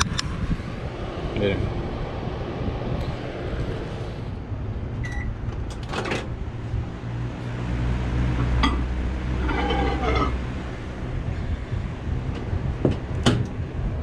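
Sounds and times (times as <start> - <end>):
microwave beep: 5.0 - 5.4.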